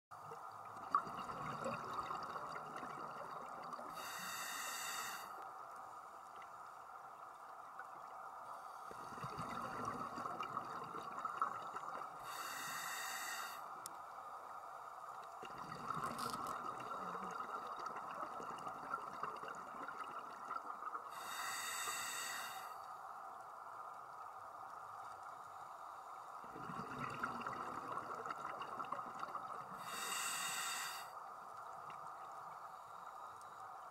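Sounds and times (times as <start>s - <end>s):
underwater hum: 0.2s - 33.9s
regulator hissing breaths: 3.9s - 5.4s, 12.2s - 13.7s, 21.1s - 22.8s, 29.8s - 31.2s.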